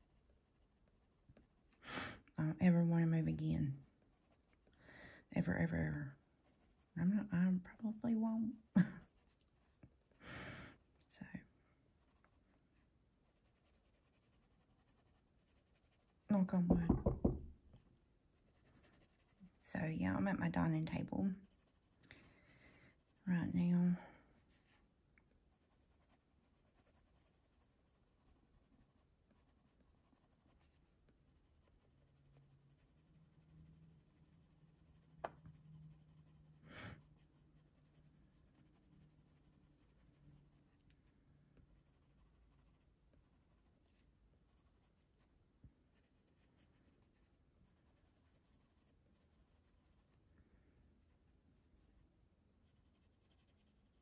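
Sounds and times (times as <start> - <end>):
pencil scratching on paper: 2.6 - 4.7, 5.4 - 7.3, 9.0 - 9.8, 12.0 - 16.4, 18.4 - 19.6, 21.3 - 22.0, 22.9 - 23.4, 24.4 - 24.8, 25.5 - 41.0, 41.6 - 45.3, 46.0 - 50.2, 52.6 - 54.0.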